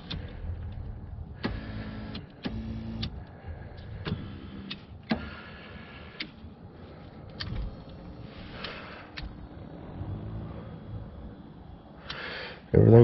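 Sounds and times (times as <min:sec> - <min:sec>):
electric seat motors running: 0:00.0 - 0:06.2.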